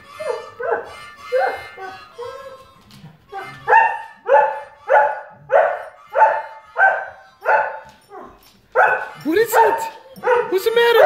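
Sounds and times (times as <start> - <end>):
harmonica ringtone: 0.0 - 11.0
dog barking: 0.2 - 1.8, 3.4 - 11.0.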